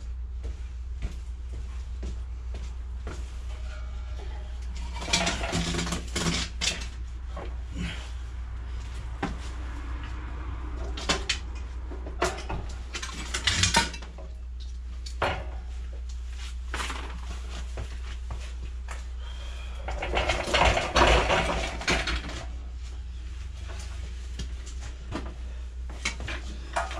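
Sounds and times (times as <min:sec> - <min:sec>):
steady low hum: 0:00.0 - 0:26.9
metal clanking and rattling: 0:03.5 - 0:07.0, 0:10.8 - 0:14.4, 0:19.7 - 0:22.6.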